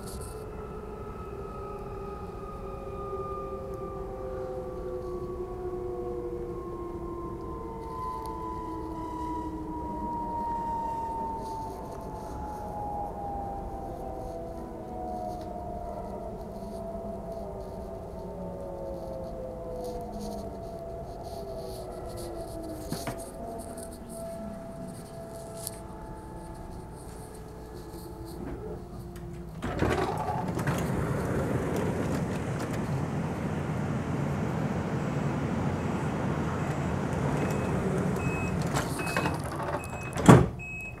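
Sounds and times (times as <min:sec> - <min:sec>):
electric train motors whining: 0:22.4 - 0:39.9
train door opening: 0:22.7 - 0:23.4, 0:27.8 - 0:41.0
door shutting thump: 0:28.4 - 0:32.8, 0:38.5 - 0:40.6
door warning beeps: 0:37.2 - 0:41.0.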